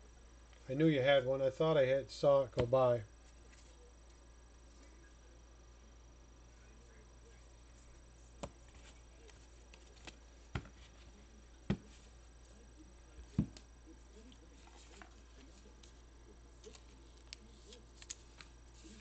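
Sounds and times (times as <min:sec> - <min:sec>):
low steady hum: 0:00.0 - 0:19.0
cards tapping and clicking: 0:08.4 - 0:10.9.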